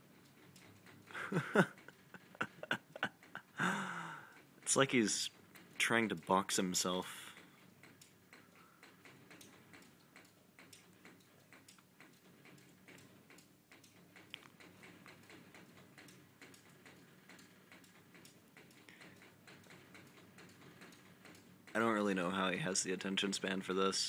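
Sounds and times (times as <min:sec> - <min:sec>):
low room hum: 0:00.0 - 0:24.0.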